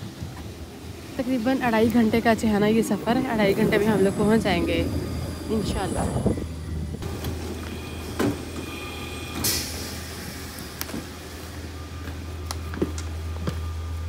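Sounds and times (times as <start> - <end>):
train carriage hum: 0.0 - 14.0
footsteps on carriage floor: 12.0 - 13.7.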